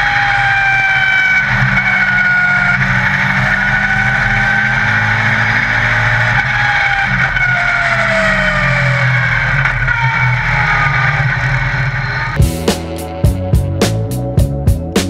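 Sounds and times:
race car engine running hard: 0.0s - 9.9s.

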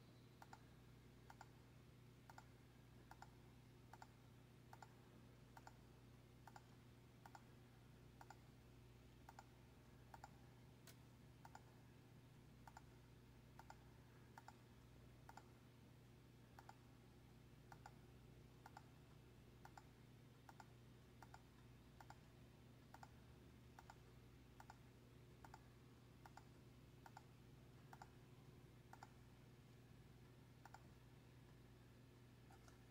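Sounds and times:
low steady hum: 0.0s - 32.9s
faint even clicks: 30.6s - 31.0s.

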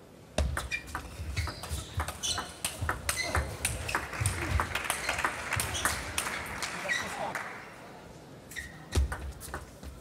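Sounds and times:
shoes thudding and squeaking: 0.4s - 6.0s.

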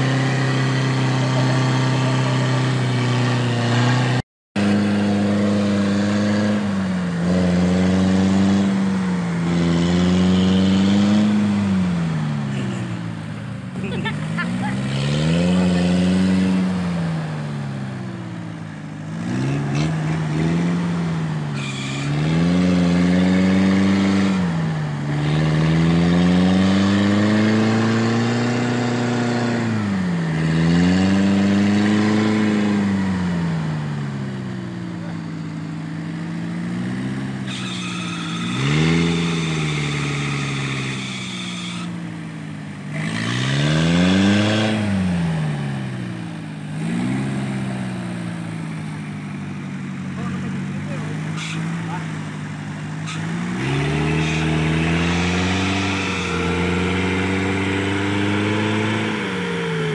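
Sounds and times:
truck engine revving: 0.0s - 59.9s.

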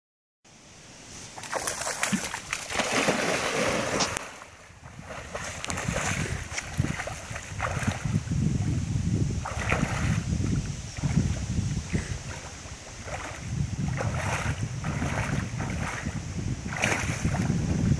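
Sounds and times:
dog splashing in water: 1.4s - 4.4s, 16.7s - 17.5s.

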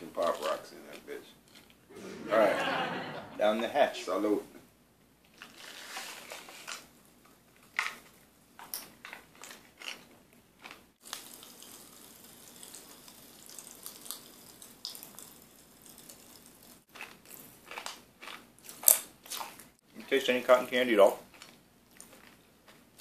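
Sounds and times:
popping candy crackling: 7.6s - 19.6s.

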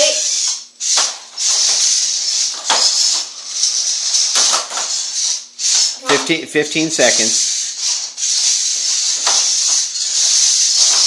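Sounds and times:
toy robot treads and motors: 0.0s - 11.0s.

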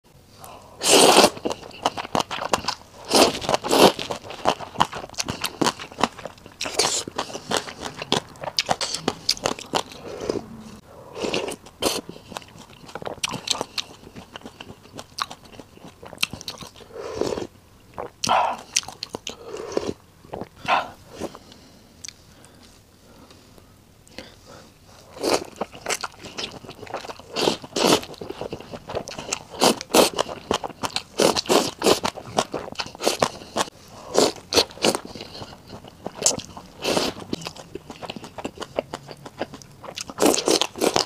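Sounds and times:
slurping noodles: 0.8s - 1.6s, 3.0s - 13.4s, 16.8s - 17.5s
chewing with small clicks: 11.6s - 16.9s, 17.9s - 20.7s, 34.5s - 41.0s.

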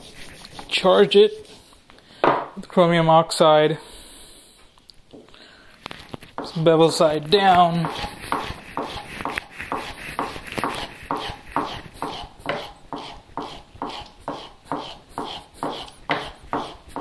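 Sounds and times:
chisel rubbing on leather strop: 6.2s - 17.0s.

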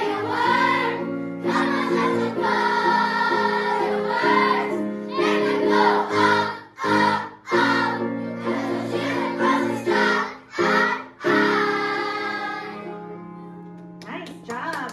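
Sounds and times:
children singing in unison: 0.0s - 13.0s.

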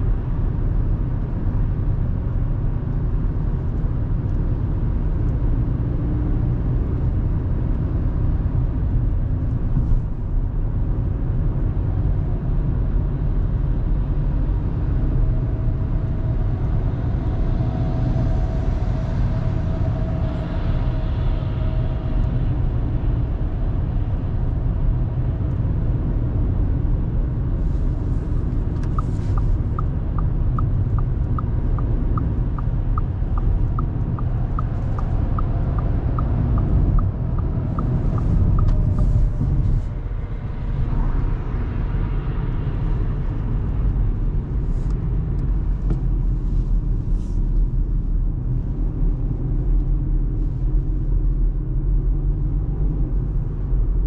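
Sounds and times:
car road and engine rumble: 0.0s - 54.0s
turn signal ticking: 28.3s - 39.8s.

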